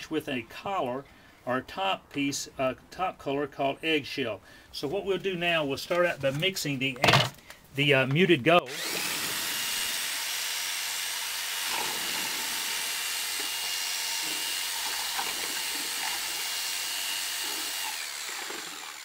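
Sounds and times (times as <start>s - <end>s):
electric drill mixing glaze: 8.7s - 19.0s.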